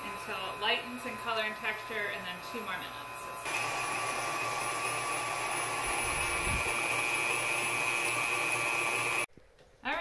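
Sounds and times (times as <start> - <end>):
stand mixer motor whining: 2.7 - 9.3.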